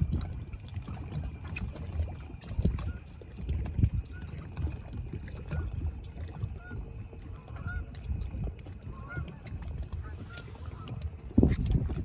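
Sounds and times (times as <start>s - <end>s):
geese honking in flight: 7.4s - 7.9s.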